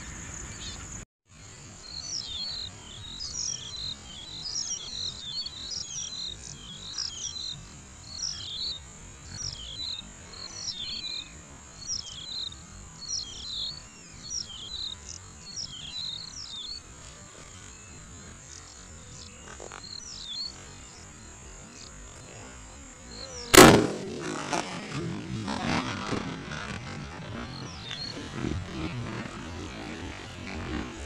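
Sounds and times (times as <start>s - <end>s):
low outdoor rumble: 23.6s - 31.0s.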